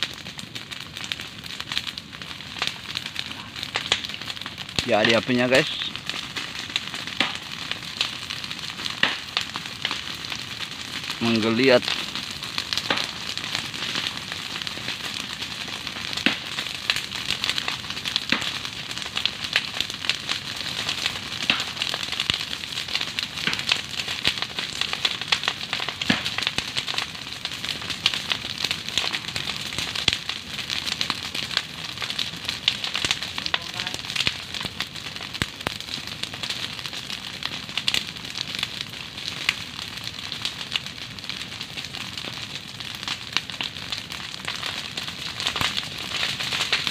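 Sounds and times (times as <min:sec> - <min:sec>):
fire crackling and popping: 0:00.0 - 0:46.9.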